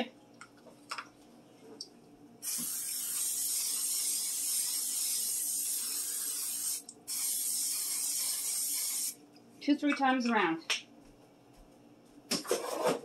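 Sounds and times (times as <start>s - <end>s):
aerosol spray hissing: 2.4s - 9.2s.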